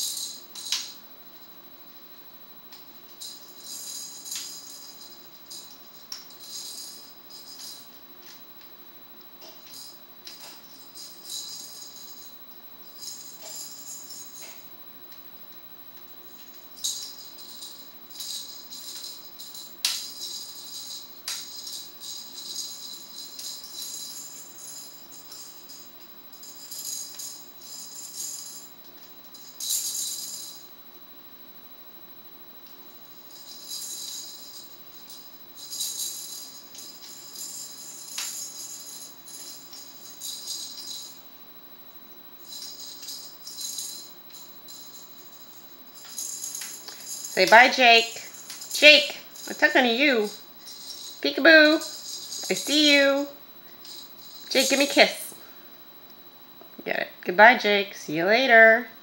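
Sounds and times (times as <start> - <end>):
plastic toy maraca rattling: 0.0 - 1.0, 16.4 - 28.7, 42.4 - 55.2.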